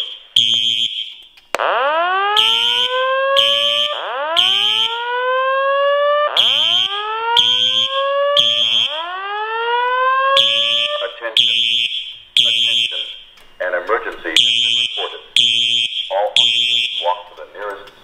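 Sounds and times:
fire alarm horn blasts: 0.0 - 13.3, 14.3 - 17.3.

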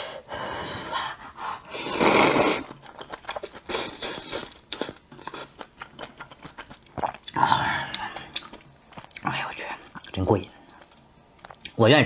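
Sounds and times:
person slurping noodles: 1.6 - 5.6
wet chewing and mouth clicks: 2.6 - 11.8.

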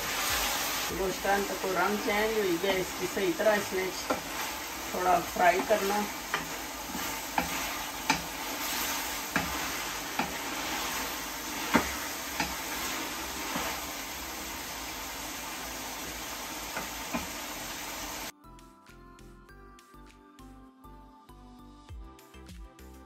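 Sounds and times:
meat sizzling in a pan: 0.0 - 18.3
wooden spoon knocking on pan: 4.0 - 4.4, 5.6 - 8.5, 9.3 - 10.8, 11.5 - 12.8.

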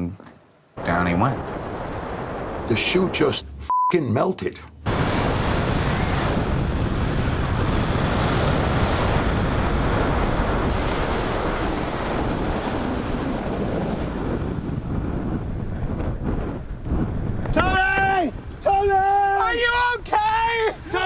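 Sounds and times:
wind rushing over microphone: 4.8 - 21.0.

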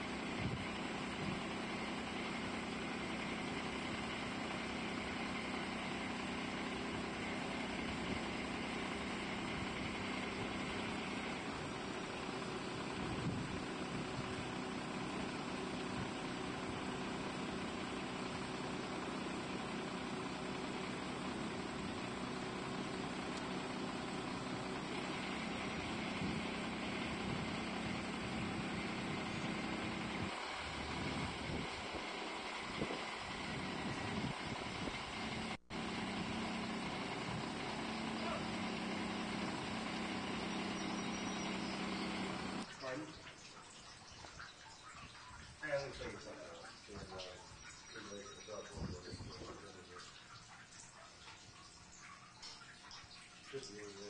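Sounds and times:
engine idling: 0.0 - 43.0, 53.5 - 54.0
low hum tones: 0.0 - 54.0
wind on microphone: 30.2 - 32.1, 32.7 - 35.0
constant hiss: 42.2 - 54.0.

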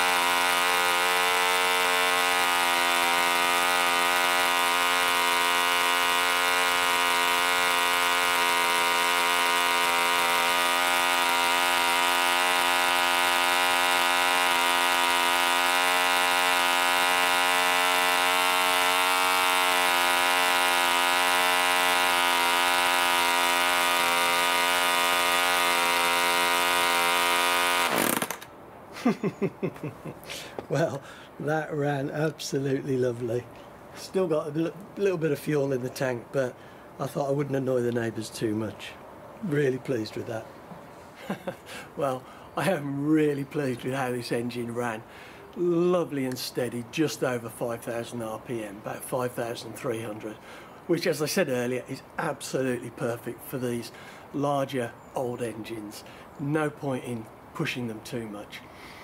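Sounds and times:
model engine running: 0.0 - 28.5.

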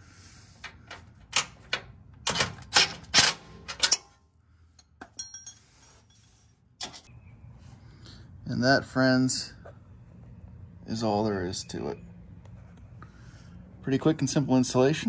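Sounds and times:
metal bolts clicking and clinking: 0.6 - 6.2.

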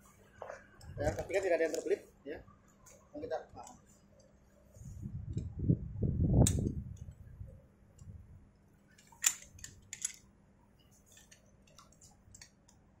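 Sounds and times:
metal carabiners clicking: 8.9 - 10.3, 11.1 - 12.6.

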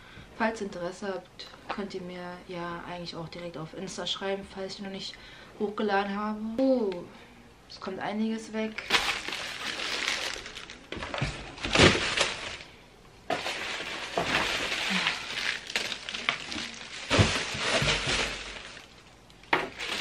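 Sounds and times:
wrapping paper crinkling: 8.8 - 12.7, 13.3 - 20.0
rustling in cardboard box: 8.9 - 12.7, 13.3 - 19.0, 19.7 - 20.0.

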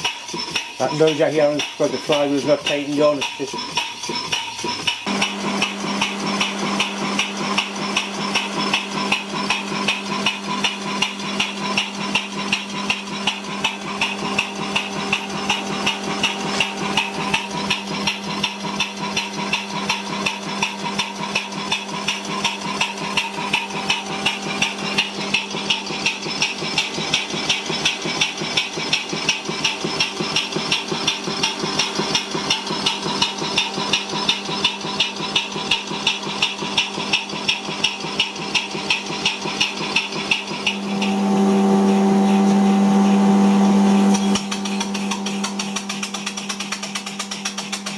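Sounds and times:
steam engine knocking and puffing: 0.0 - 47.9
steady hum: 40.4 - 47.8.

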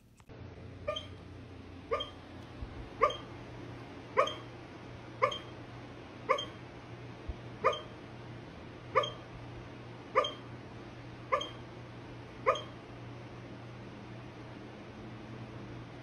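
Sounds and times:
dog hiccuping: 0.9 - 1.2, 1.9 - 2.2, 3.0 - 3.3, 4.2 - 4.5, 5.2 - 5.5, 6.3 - 6.6, 7.6 - 7.9, 9.0 - 9.2, 10.2 - 10.4, 11.3 - 11.6, 12.5 - 12.7.

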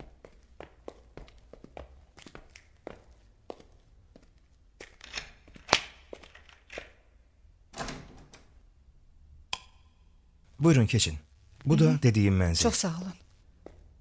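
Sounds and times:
metal door opening: 7.7 - 8.6.

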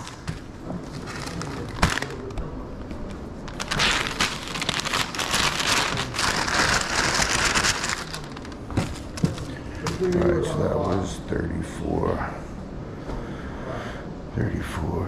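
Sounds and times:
paper bag rustling and crinkling: 0.0 - 10.2.

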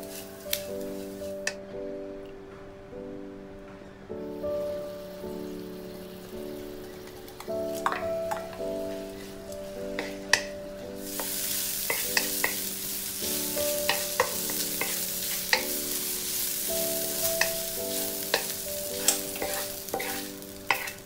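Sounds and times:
food sizzling in a wok: 0.0 - 1.5, 4.6 - 21.0
spatula scraping a wok: 11.1 - 12.6, 13.9 - 21.0.

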